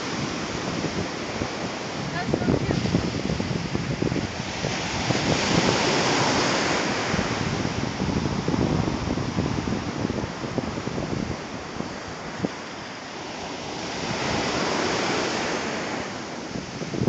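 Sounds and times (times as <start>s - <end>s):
surf washing on beach: 0.0s - 17.0s
wind buffeting microphone: 0.0s - 17.0s.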